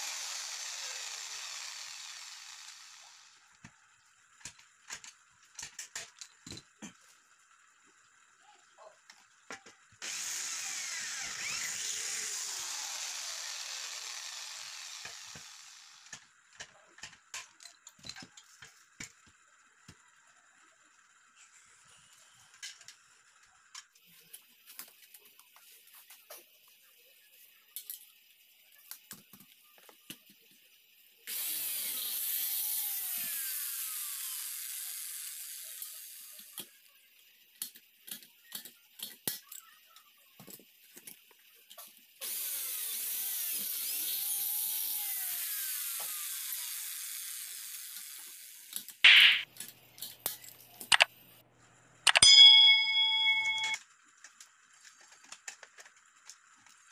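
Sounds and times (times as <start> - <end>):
electric drill boring into metal: 0.0 - 3.4, 10.0 - 16.2, 31.3 - 36.6, 42.2 - 48.7
sharp snap: 49.1 - 49.5.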